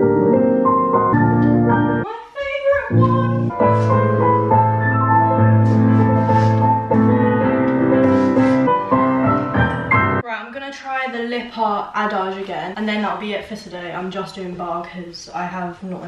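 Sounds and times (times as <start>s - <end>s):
piano music with held notes: 0.0s - 2.1s, 2.8s - 10.2s.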